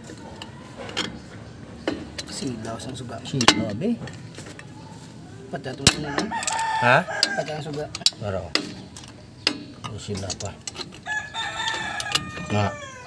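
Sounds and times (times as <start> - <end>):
pliers clicking on metal: 5.8 - 13.0.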